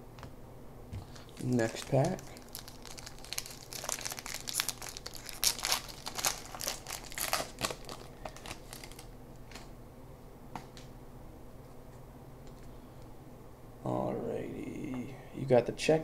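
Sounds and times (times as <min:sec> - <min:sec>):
wrapper crinkling and tearing: 0:01.0 - 0:09.6.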